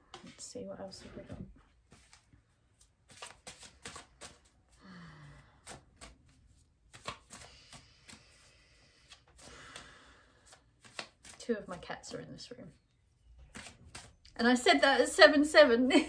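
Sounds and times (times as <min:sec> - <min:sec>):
cards being shuffled: 0:01.9 - 0:04.6, 0:05.5 - 0:12.2, 0:13.4 - 0:14.3.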